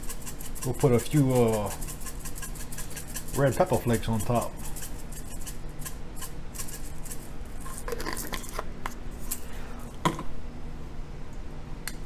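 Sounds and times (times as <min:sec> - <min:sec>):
spice jar rattling: 0:00.0 - 0:08.6.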